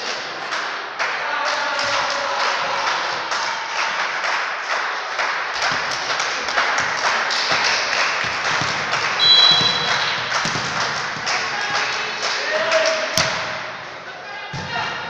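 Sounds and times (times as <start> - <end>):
echoing sports hall clatter: 0.0 - 15.0
referee's whistle: 9.2 - 10.2.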